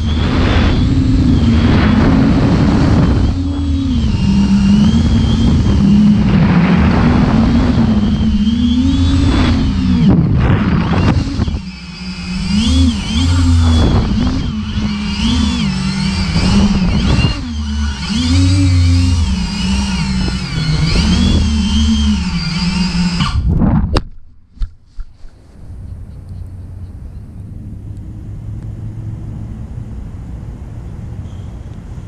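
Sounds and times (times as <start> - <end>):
drone motors whining: 0.0 - 32.0.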